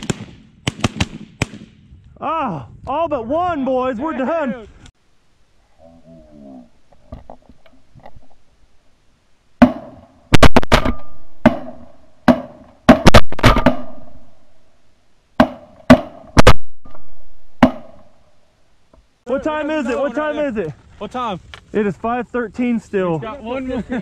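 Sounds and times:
shotgun shots: 0:00.0 - 0:01.8, 0:09.6 - 0:14.2, 0:15.4 - 0:16.7.

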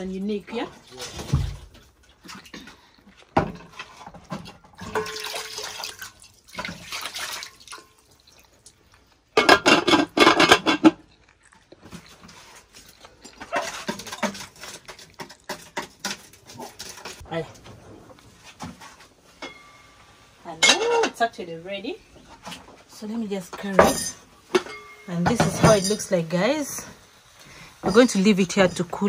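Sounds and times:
pots being handled: 0:00.0 - 0:08.0, 0:09.3 - 0:11.1, 0:11.8 - 0:21.5, 0:22.2 - 0:27.1
water poured into metal pot: 0:04.3 - 0:08.8.

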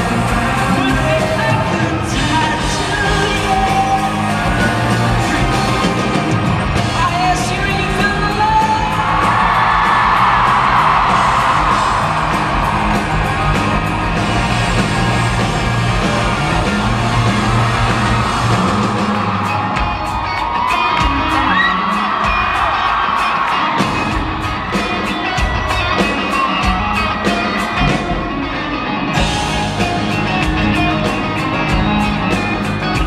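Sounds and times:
man singing: 0:00.0 - 0:08.9
live rock band playing: 0:00.0 - 0:33.0.

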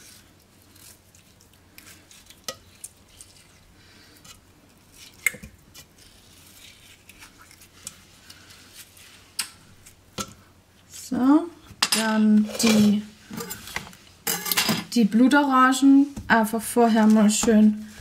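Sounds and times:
spoon scraping fruit: 0:00.0 - 0:10.0.

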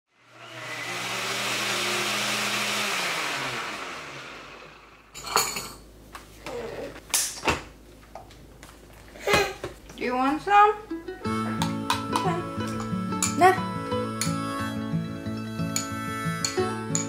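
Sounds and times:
blender motor running: 0:00.1 - 0:05.1.

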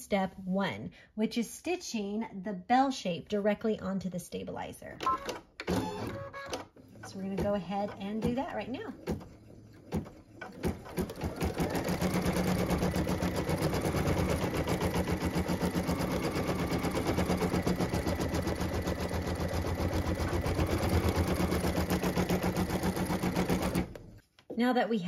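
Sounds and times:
embroidery machine stitching: 0:05.1 - 0:24.2.

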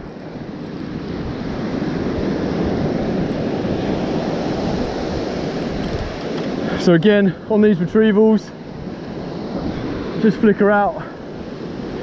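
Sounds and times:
wind on microphone: 0:00.0 - 0:06.9
surf breaking on beach: 0:01.2 - 0:12.0.

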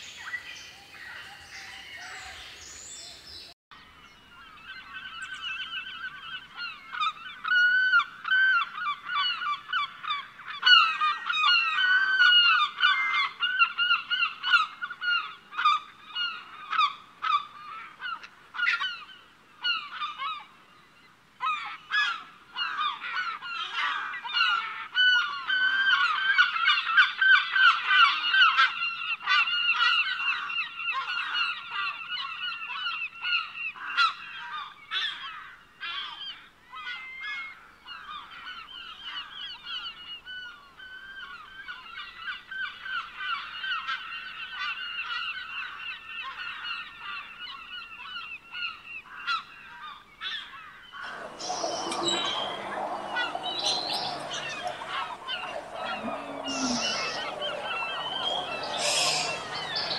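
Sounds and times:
flock of birds calling: 0:50.3 - 0:59.9.

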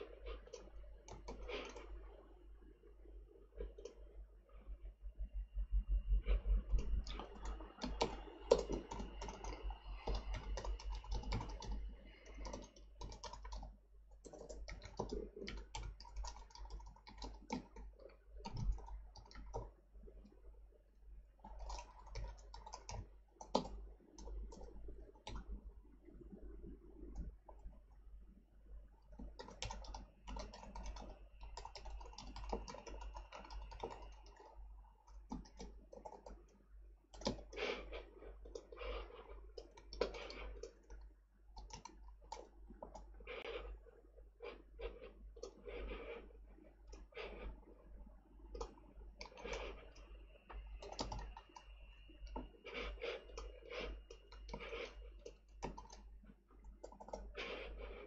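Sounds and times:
low steady hum: 0:00.0 - 0:58.0
typing on computer keyboard: 0:00.4 - 0:01.8, 0:06.8 - 0:19.8, 0:21.4 - 0:25.5, 0:29.1 - 0:37.6, 0:39.5 - 0:43.1, 0:48.5 - 0:50.0, 0:50.8 - 0:56.0, 0:56.6 - 0:57.7.

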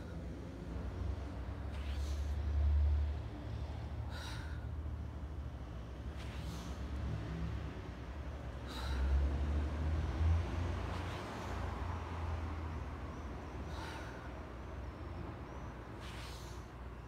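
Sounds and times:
person breathing hard: 0:03.3 - 0:05.0, 0:08.5 - 0:09.6, 0:13.6 - 0:14.5.

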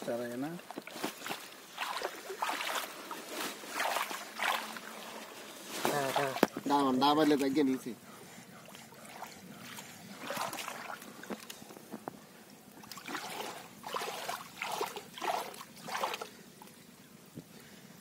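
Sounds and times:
water splashing in a net: 0:00.7 - 0:07.6, 0:09.0 - 0:11.5, 0:12.8 - 0:16.8.

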